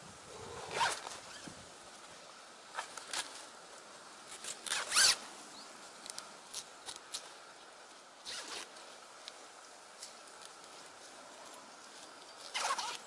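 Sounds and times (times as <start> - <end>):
faint clicks and rustles: 0.6 - 13.0
zip being pulled: 0.7 - 1.4, 4.6 - 5.2, 8.2 - 8.7, 12.5 - 13.0.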